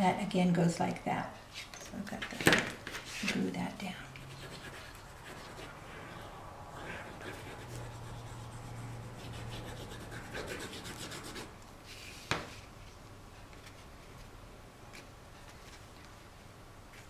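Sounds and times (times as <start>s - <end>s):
paper rubbing on cutting mat: 7.1s - 12.3s.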